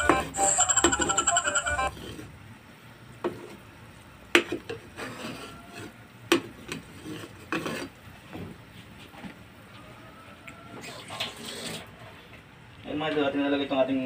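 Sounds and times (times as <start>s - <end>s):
metal spoon scraping a pot: 5.0s - 5.9s, 6.7s - 8.0s.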